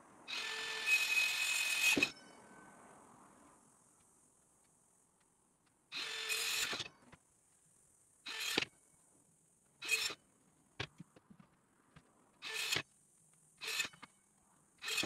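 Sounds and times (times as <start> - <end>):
circular saw cutting wood: 0.3 - 2.2, 5.9 - 6.9, 8.3 - 8.7, 9.8 - 10.2, 12.4 - 12.8, 13.6 - 14.0, 14.8 - 15.0.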